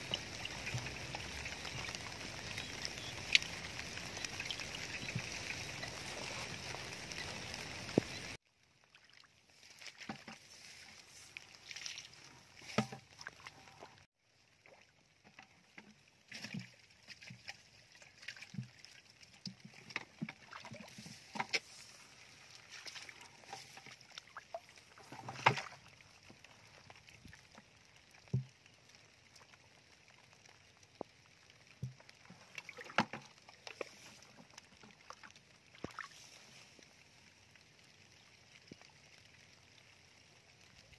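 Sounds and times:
splashes in shallow water: 0:00.0 - 0:15.0, 0:16.2 - 0:27.5, 0:31.8 - 0:37.2.

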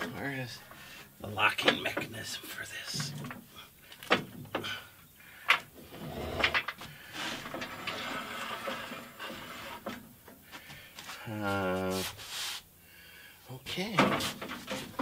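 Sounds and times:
lift rattling and scraping on casters: 0:05.4 - 0:10.4, 0:13.8 - 0:15.0.

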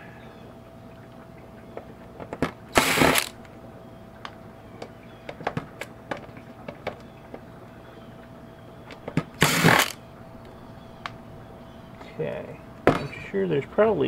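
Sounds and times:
cordless drill running: 0:02.7 - 0:03.4, 0:09.4 - 0:10.0.

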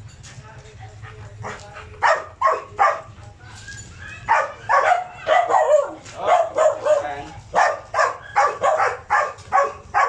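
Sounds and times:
dogs yipping and whining: 0:03.5 - 0:10.0.

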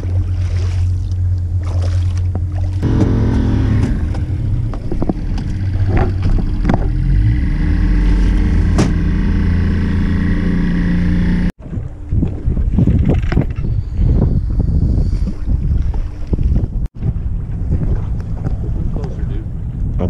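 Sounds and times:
outboard motor running: 0:00.0 - 0:13.6
sharp knocks: 0:08.6 - 0:09.2.

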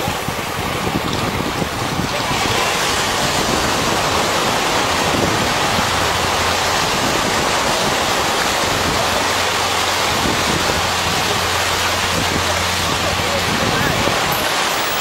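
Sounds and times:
surf rushing on a beach: 0:00.0 - 0:15.0.

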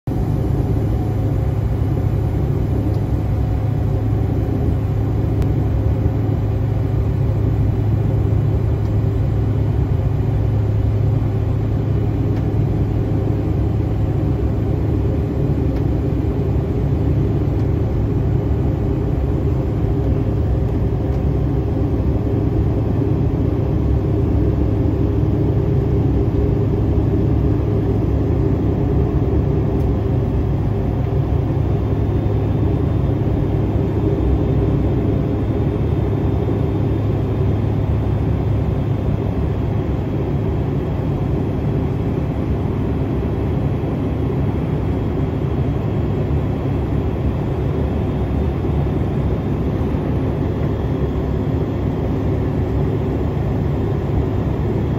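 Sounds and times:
jet engine and airflow rumble: 0:00.0 - 0:54.9.

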